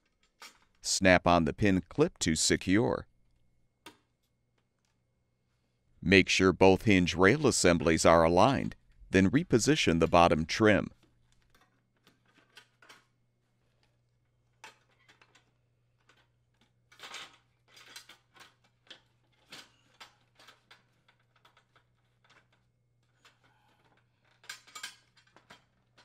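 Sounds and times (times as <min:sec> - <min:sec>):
faint clicks of metal parts: 0:00.0 - 0:00.8, 0:03.2 - 0:05.0, 0:11.0 - 0:26.0.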